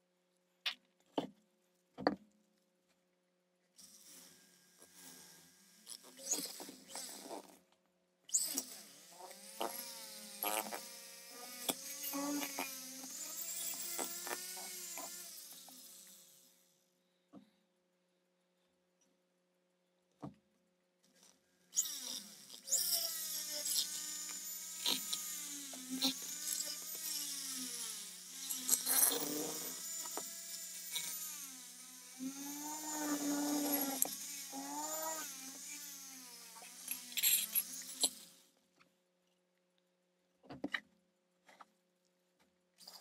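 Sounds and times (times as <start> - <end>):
rotary tool wire wheel whining: 8.3 - 16.5, 21.7 - 38.4.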